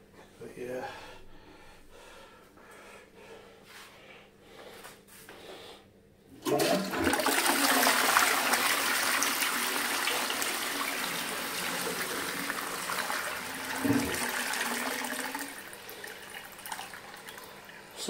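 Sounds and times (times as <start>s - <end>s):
toilet flushing: 6.3s - 18.0s.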